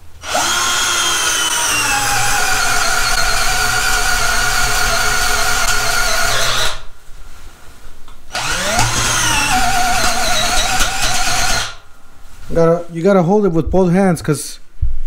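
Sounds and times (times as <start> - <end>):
drill boring into wood: 0.2 - 6.9, 8.3 - 11.8.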